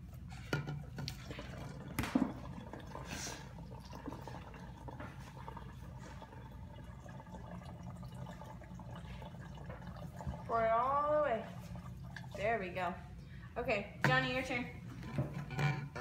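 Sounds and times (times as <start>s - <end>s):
liquid pouring and splashing: 0.1s - 12.8s.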